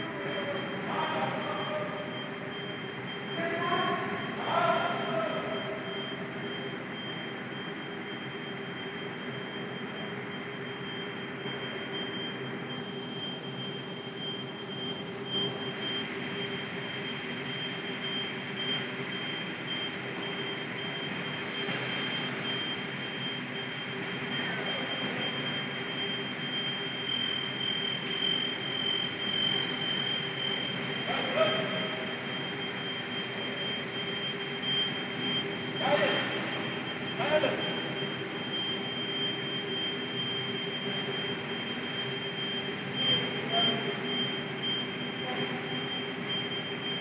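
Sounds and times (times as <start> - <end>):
industrial machinery drone: 0.0 - 47.0
high-pitched whine: 20.1 - 47.0.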